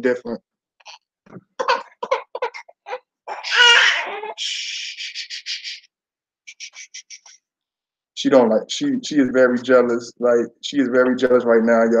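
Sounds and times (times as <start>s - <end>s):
infant squealing: 1.6s - 5.9s.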